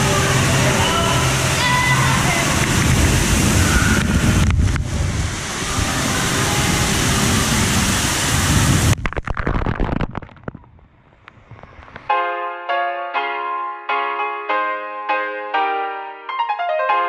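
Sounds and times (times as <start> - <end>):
gentle piano music: 0.0 - 3.8, 12.0 - 17.0
rushing and splashing water: 0.0 - 10.6.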